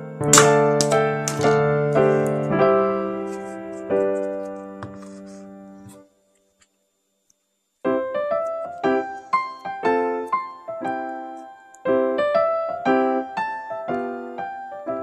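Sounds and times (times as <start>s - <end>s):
light piano tune: 0.0s - 6.1s, 7.9s - 15.0s.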